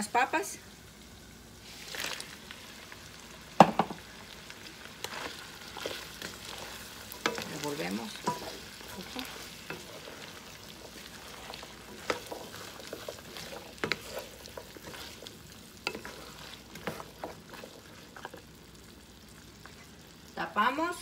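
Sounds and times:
meat sizzling: 0:00.0 - 0:21.0
spatula scraping a pan: 0:05.0 - 0:18.5.

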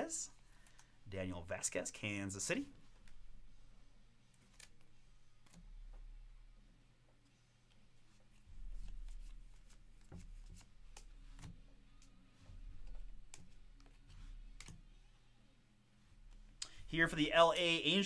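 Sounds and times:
cards sliding and clicking: 0:04.4 - 0:05.6.

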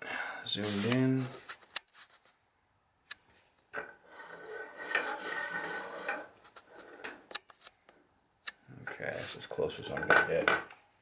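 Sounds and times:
rubbing and shifting handling noise: 0:03.8 - 0:07.7.

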